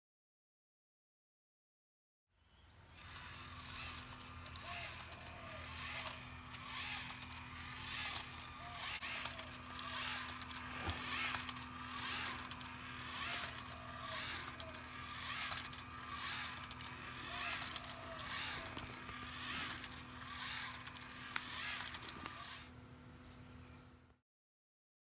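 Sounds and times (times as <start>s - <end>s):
robot motor whirring: 2.9s - 22.8s.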